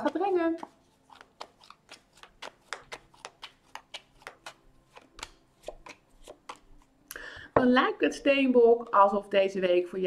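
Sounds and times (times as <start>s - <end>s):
cards being shuffled: 0.0s - 6.9s.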